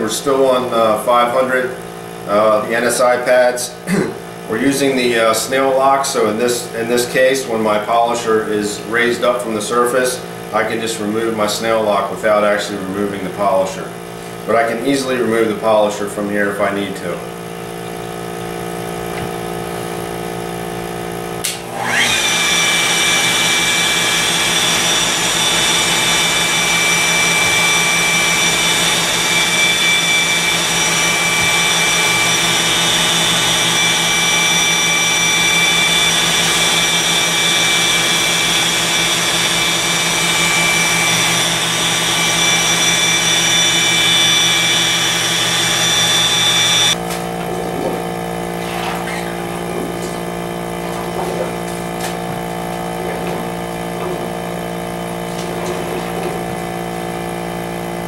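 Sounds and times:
air pump humming: 0.0s - 58.0s
electric polisher whining: 21.4s - 58.0s.

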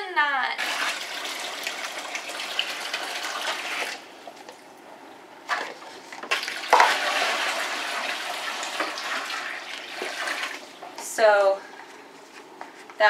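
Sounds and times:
water pouring into plastic tub: 0.6s - 4.0s, 5.5s - 10.8s.

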